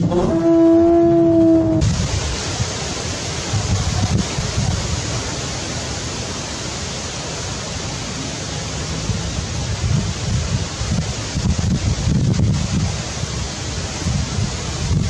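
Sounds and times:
wind on microphone: 0.0 - 5.2, 9.0 - 15.0.

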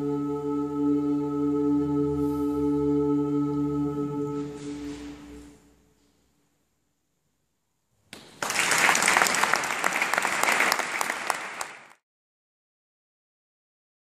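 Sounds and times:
audience applauding: 8.2 - 12.0.

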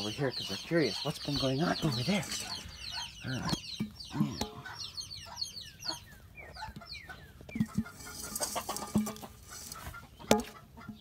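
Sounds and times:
chicks peeping: 0.0 - 11.0
hens clucking: 0.0 - 11.0.

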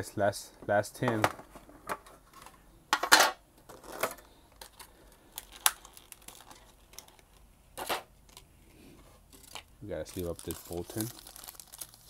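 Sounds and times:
plastic packaging crinkling: 3.7 - 7.5, 9.3 - 12.0
plastic packaging clicks: 3.9 - 7.4.

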